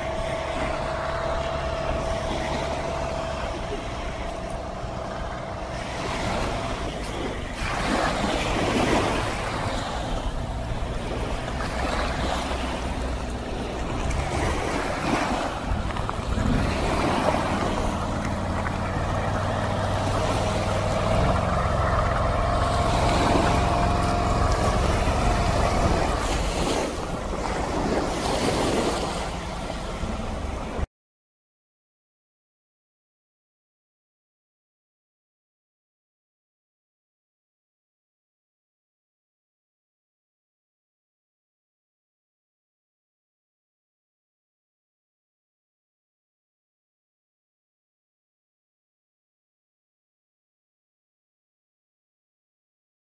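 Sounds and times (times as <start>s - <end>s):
wind on microphone: 0.0s - 30.8s
vehicle engine humming: 0.0s - 30.9s
water splashing and waves: 0.0s - 30.9s.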